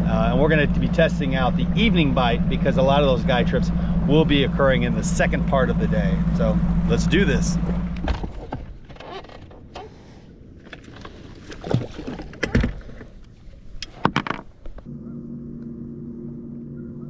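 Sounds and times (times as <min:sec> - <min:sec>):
clunks and knocks of handled motor: 0:07.6 - 0:09.8, 0:10.6 - 0:13.2, 0:13.8 - 0:14.9.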